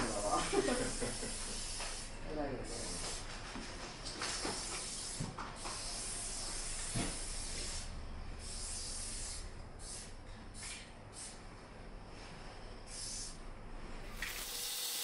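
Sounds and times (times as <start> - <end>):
spray paint can hissing: 0.0 - 2.1, 4.3 - 11.4, 12.9 - 13.4.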